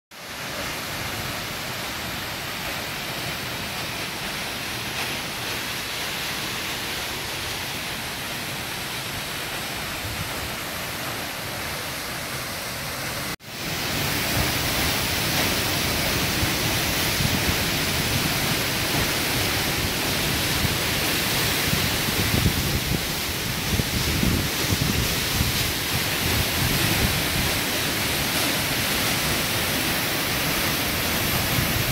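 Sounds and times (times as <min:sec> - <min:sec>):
waterfall rushing: 0:00.2 - 0:31.9.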